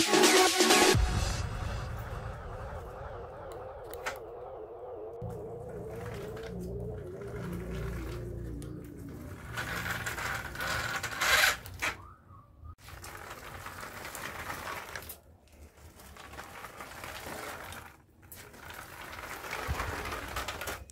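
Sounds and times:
toy motor whirring: 9.1s - 12.0s.

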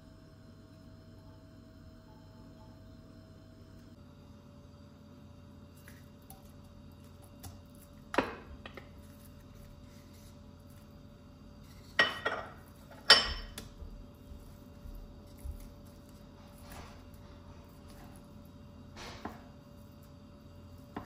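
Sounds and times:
kitchenware knocking and clinking: 12.0s - 13.6s.

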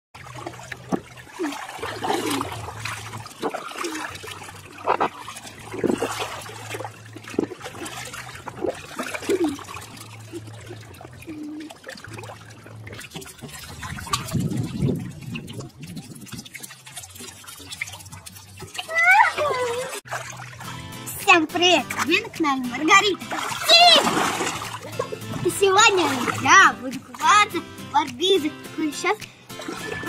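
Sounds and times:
low steady hum: 0.2s - 16.0s
water splashing in paddling pool: 0.2s - 30.0s.

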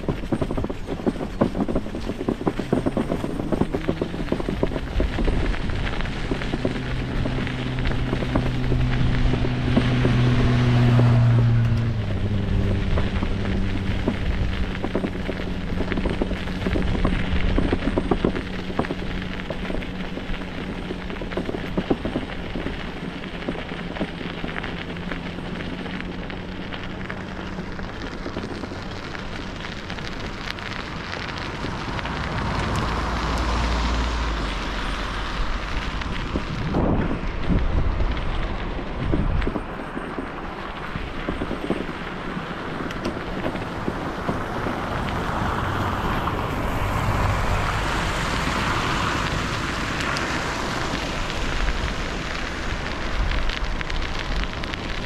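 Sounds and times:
steady low hum: 0.0s - 33.5s
bicycle tyres rolling on grit: 0.0s - 55.0s
wind on microphone: 0.0s - 55.0s.

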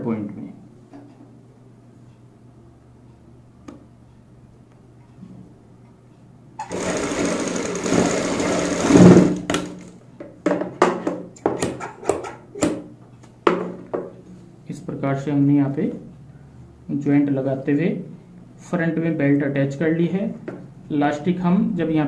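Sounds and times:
sewing machine running: 6.6s - 9.9s.

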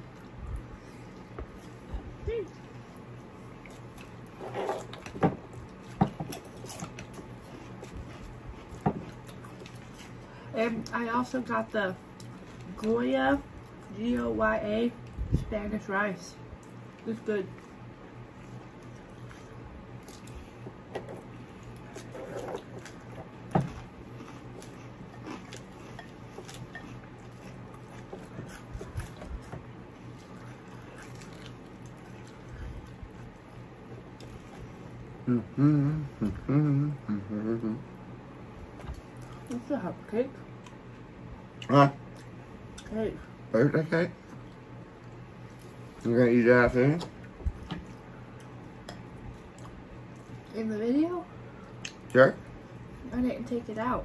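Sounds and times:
soft chewing: 0.0s - 15.4s, 16.4s - 43.4s, 44.2s - 50.5s, 51.3s - 53.1s
faint low hum: 0.0s - 54.0s.

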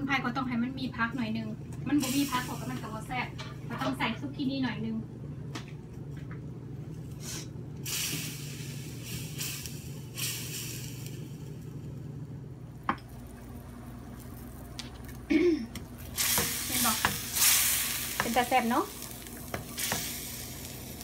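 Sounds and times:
steady low hum: 0.0s - 21.0s
vegetables sizzling in a pan: 2.0s - 3.1s, 7.2s - 11.7s, 13.0s - 21.0s.

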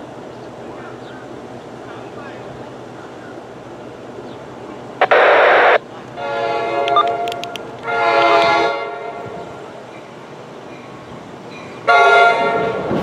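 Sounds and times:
train air horn blasts: 6.2s - 9.6s, 11.8s - 13.0s.

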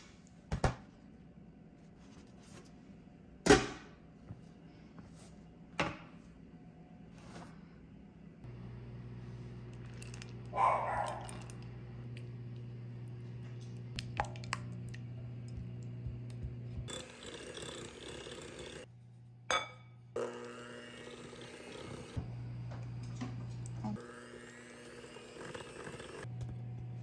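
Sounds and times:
low steady hum: 0.3s - 17.1s
electric hand mixer whirring: 14.7s - 18.9s, 20.2s - 23.0s, 23.6s - 27.0s.

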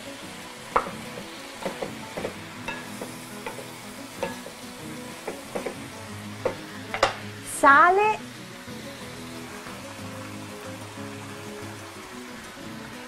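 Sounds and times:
vegetables sizzling: 0.0s - 13.0s
wooden spoon knocking on pan: 0.7s - 7.2s.

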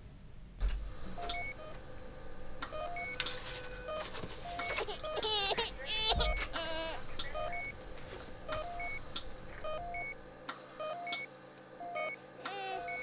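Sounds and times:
newborn baby crying: 4.8s - 7.1s.

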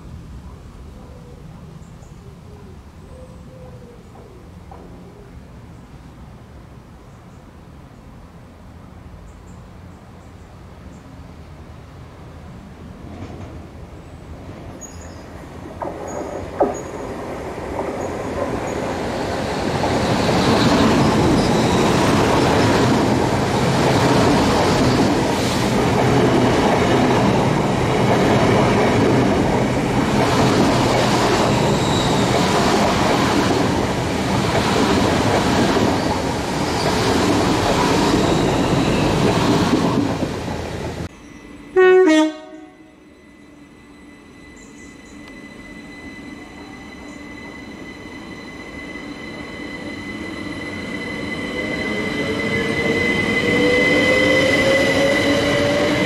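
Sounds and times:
train wheels rumbling on rail: 12.4s - 41.1s, 44.9s - 56.0s
train horn blast: 41.7s - 43.0s.

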